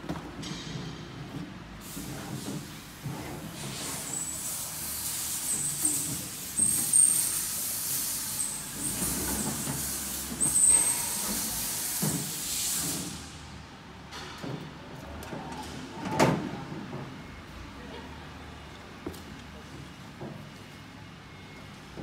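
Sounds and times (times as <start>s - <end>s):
metal table sliding on rails: 8.4s - 12.3s.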